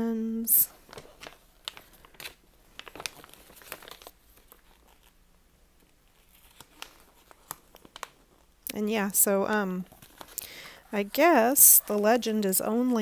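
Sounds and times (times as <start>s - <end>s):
paper rustling and crinkling: 0.7s - 5.2s, 5.8s - 8.5s, 9.8s - 13.0s.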